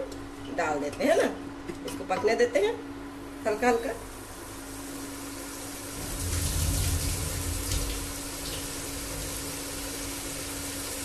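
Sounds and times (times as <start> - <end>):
water pouring and splashing: 5.9 - 11.0.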